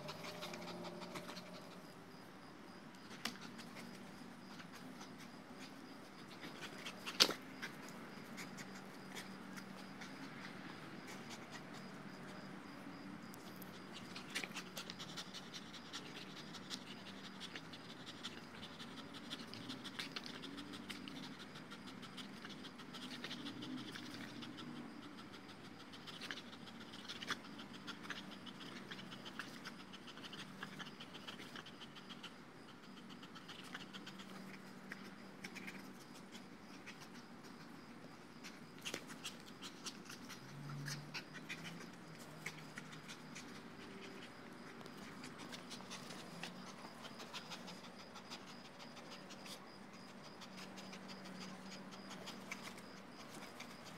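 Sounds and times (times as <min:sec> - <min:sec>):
dog panting: 0:00.0 - 0:53.9.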